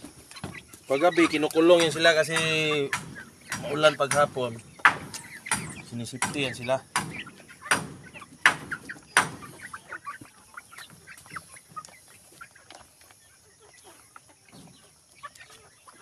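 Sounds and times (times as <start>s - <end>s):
chickens clucking: 0.0s - 16.0s
chickens pecking at feed: 0.0s - 16.0s
loud sharp taps: 1.8s - 9.5s.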